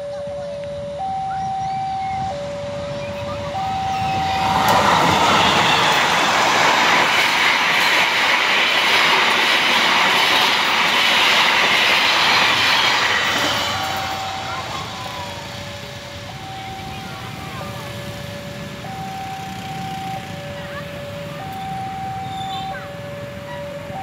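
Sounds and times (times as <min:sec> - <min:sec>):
level crossing alarm two tones: 0:00.0 - 0:06.8, 0:13.4 - 0:24.0
train wheels rushing on rail: 0:02.0 - 0:24.0.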